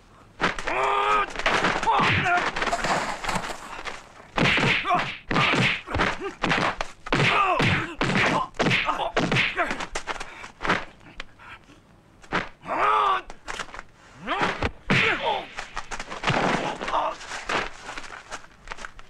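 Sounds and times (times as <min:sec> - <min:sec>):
punches landing: 0:00.4 - 0:10.9, 0:12.2 - 0:18.8.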